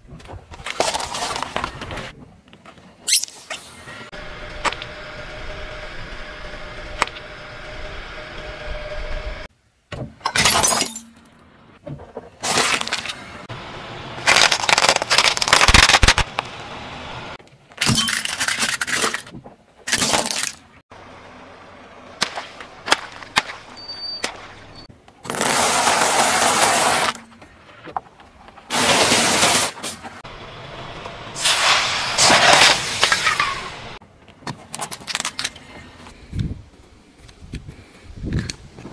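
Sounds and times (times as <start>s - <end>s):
tyre crushing plastic objects: 14.2s - 16.5s, 17.8s - 20.7s.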